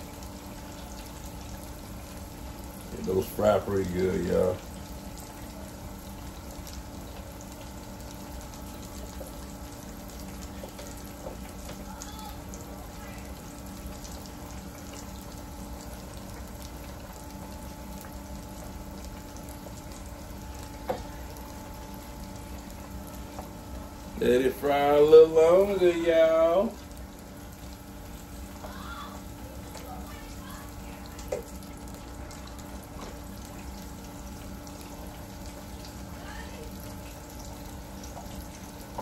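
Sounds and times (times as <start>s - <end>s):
food deep-frying in oil: 0.0s - 39.0s.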